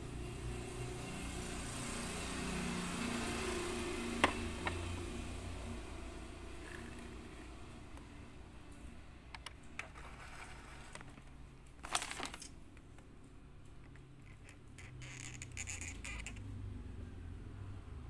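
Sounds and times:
crackling plastic rustle: 0:09.8 - 0:13.0.

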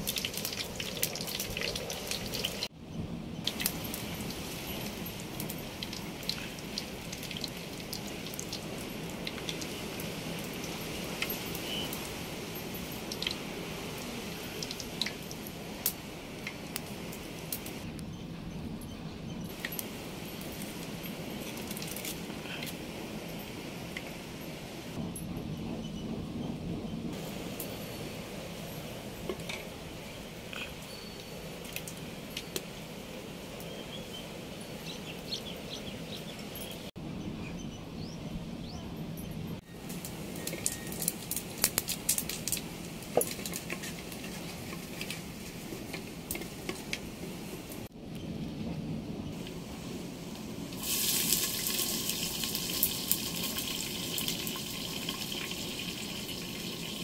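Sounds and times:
firewood crackling: 0:00.0 - 0:02.7, 0:03.4 - 0:18.0, 0:19.5 - 0:25.0, 0:27.1 - 0:37.0, 0:39.6 - 0:48.3, 0:49.3 - 0:57.0
fire and simmering water: 0:00.0 - 0:18.0, 0:19.5 - 0:25.2, 0:27.1 - 0:37.0, 0:39.2 - 0:57.0
small birds chirping: 0:33.5 - 0:39.6.

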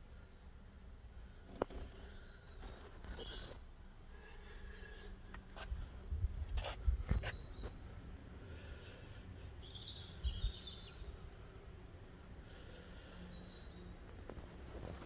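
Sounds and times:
bird chirping: 0:01.7 - 0:03.7, 0:06.6 - 0:08.0, 0:08.8 - 0:11.8, 0:12.4 - 0:15.0.

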